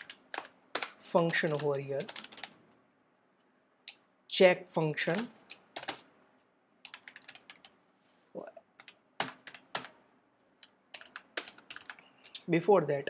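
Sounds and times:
computer keyboard typing: 0:00.0 - 0:02.6, 0:05.1 - 0:06.1, 0:06.8 - 0:07.7, 0:08.8 - 0:10.0, 0:10.6 - 0:12.4.

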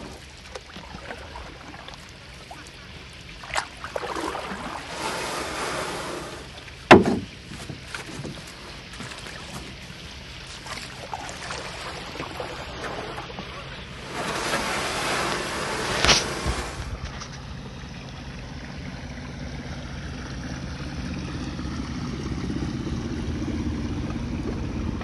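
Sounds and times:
paddle splashing in water: 0:00.0 - 0:17.4
sharp knock: 0:06.9 - 0:07.3.

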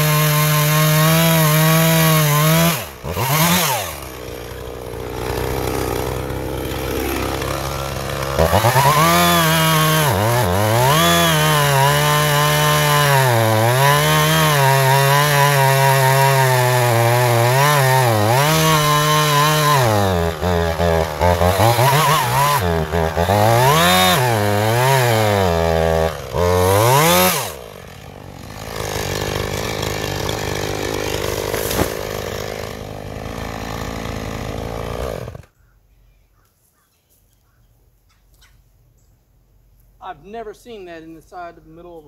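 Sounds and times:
chainsaw revving while cutting: 0:00.0 - 0:35.5
sharp crack: 0:31.0 - 0:32.6.

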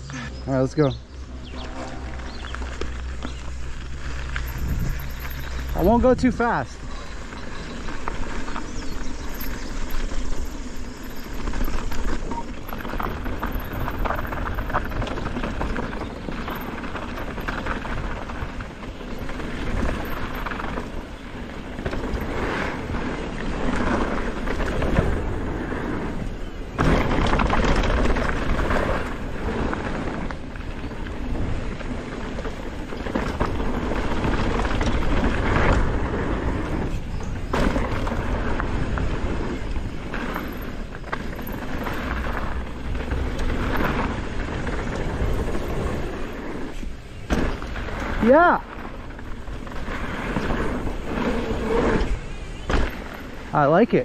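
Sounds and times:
bike tyre rumble: 0:00.0 - 0:54.0
wind buffeting microphone: 0:00.0 - 0:54.0
bike knocks and rattles: 0:02.2 - 0:53.5.

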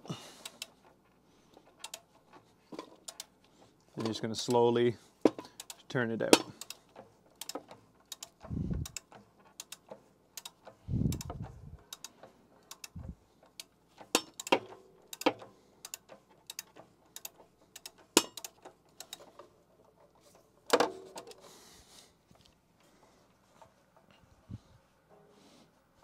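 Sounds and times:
ratchet clicking: 0:00.4 - 0:03.3, 0:04.0 - 0:21.4.

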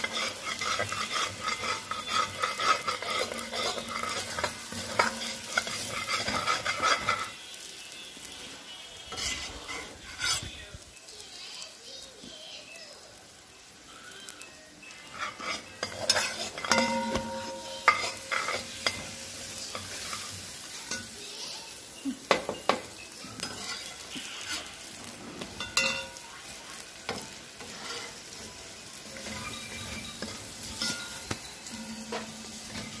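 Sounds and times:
metal spatula scraping iron pan: 0:00.0 - 0:07.3, 0:09.1 - 0:10.6, 0:15.0 - 0:21.2, 0:23.4 - 0:26.2, 0:26.9 - 0:28.4, 0:29.0 - 0:33.0
faint sizzle: 0:00.0 - 0:33.0
ringing metal clinks: 0:16.6 - 0:18.1.

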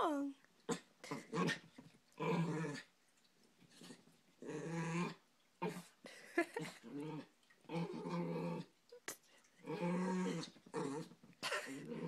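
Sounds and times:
dog growling: 0:00.7 - 0:02.9, 0:03.7 - 0:06.0, 0:06.6 - 0:08.8, 0:09.6 - 0:12.0.

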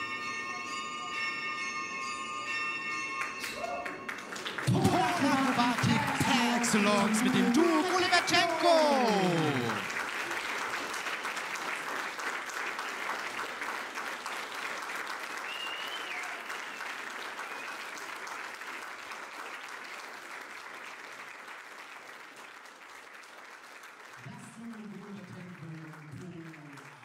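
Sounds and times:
audience applauding: 0:03.1 - 0:27.0
high whistle from crowd: 0:15.4 - 0:18.1.

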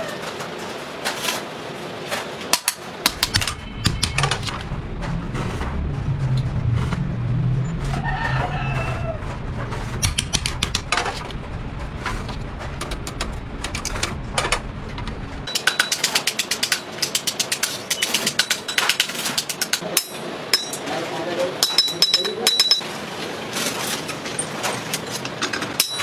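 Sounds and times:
hammer striking metal: 0:02.5 - 0:04.6, 0:10.0 - 0:11.2, 0:15.5 - 0:19.0, 0:19.9 - 0:20.9, 0:21.6 - 0:22.9, 0:25.8 - 0:26.0
low steady hum: 0:02.8 - 0:17.1.

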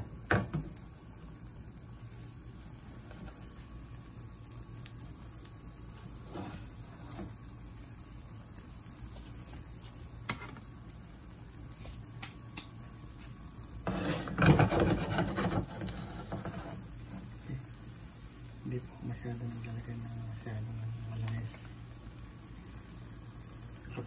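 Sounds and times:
food sizzling in oil: 0:00.0 - 0:24.0
rubbing and scraping in a pan: 0:02.7 - 0:03.8, 0:06.0 - 0:07.4, 0:09.0 - 0:10.6, 0:13.1 - 0:17.7.

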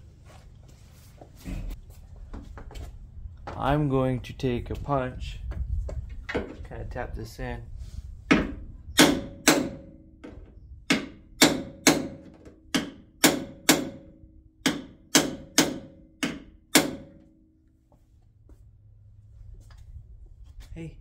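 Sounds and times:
hammer striking metal punch: 0:08.3 - 0:10.1, 0:10.9 - 0:17.4.

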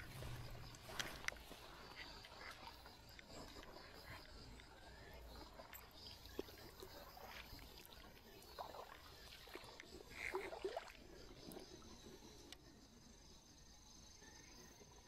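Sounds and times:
water sloshing and splashing: 0:00.0 - 0:12.6.

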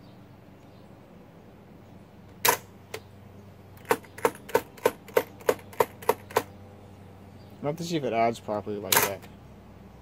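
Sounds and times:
mechanical calculator key clicks: 0:03.8 - 0:06.5.

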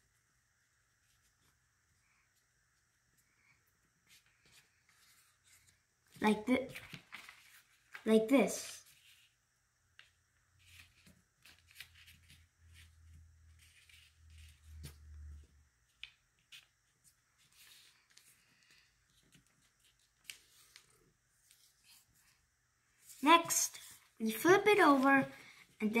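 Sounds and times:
paper rustling: 0:04.0 - 0:08.1, 0:10.0 - 0:15.1, 0:15.9 - 0:22.4, 0:23.0 - 0:25.8.

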